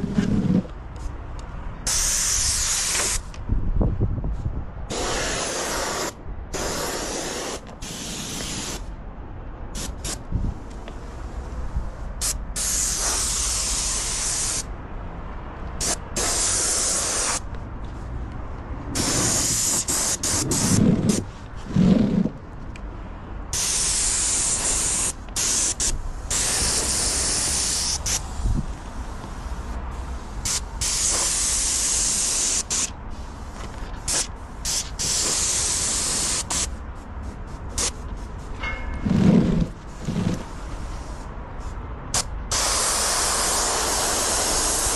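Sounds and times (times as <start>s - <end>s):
paint spray gun hissing: 1.9s - 3.3s, 4.9s - 8.8s, 12.6s - 14.6s, 15.8s - 17.4s, 19.0s - 20.7s, 23.6s - 28.4s, 29.4s - 33.3s, 34.1s - 36.7s, 42.2s - 44.9s.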